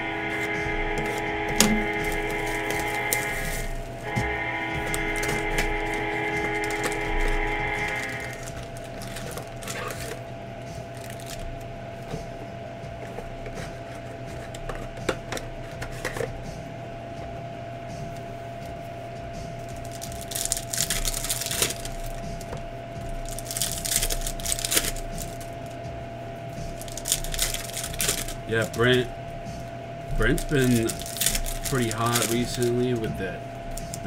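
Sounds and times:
faint steady hum: 0.0 - 34.0
card pack wrappers crinkling: 0.1 - 10.3, 10.9 - 11.6, 19.7 - 22.5, 23.2 - 25.7, 26.7 - 29.1, 30.2 - 34.0.

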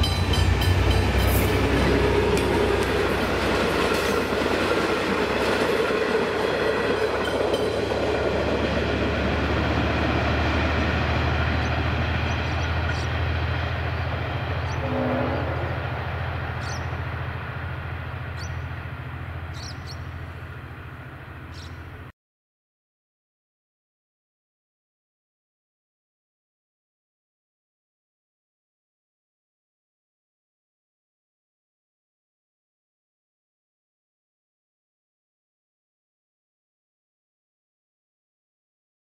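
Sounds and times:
train carriages clattering on rails: 0.0 - 9.6.

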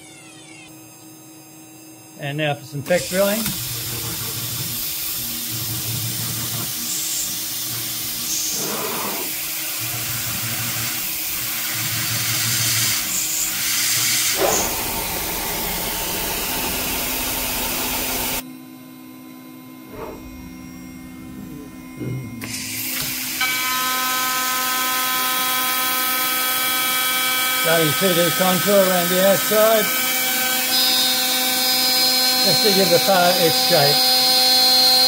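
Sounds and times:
cnc spindle drilling aluminium: 2.9 - 18.4, 19.9 - 35.0.

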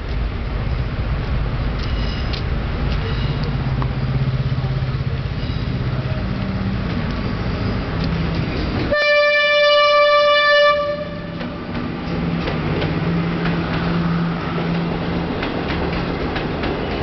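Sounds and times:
train rumbling past: 0.0 - 17.0
locomotive horn: 8.9 - 11.6.

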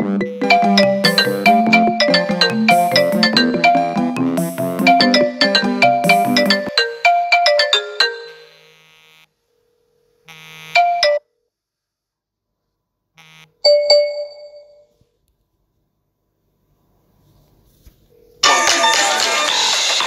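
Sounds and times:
electronic notification chimes: 0.0 - 8.6
smartphone ringtone melody: 0.0 - 8.6, 10.8 - 11.2, 13.7 - 14.9.

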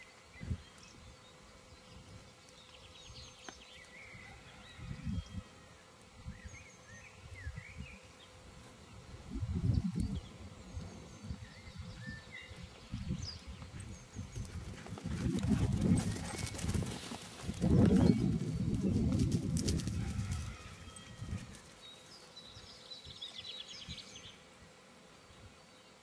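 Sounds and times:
dog paws running on grass: 13.8 - 22.0.

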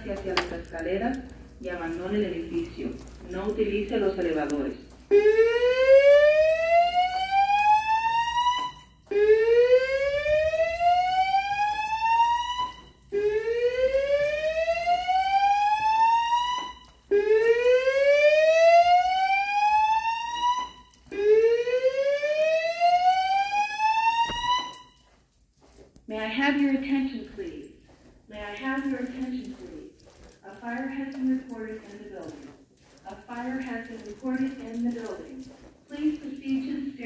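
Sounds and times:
fire alarm whoop tone: 4.8 - 25.1.

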